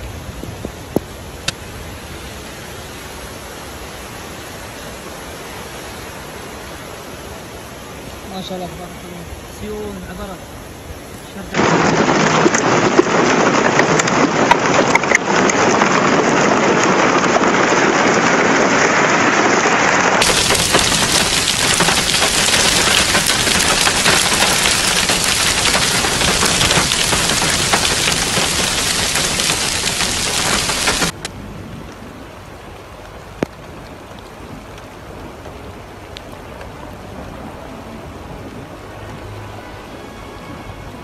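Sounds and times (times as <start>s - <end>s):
hail and heavy rain pelting: 11.4s - 31.2s
sharp hail ticks: 11.6s - 31.2s.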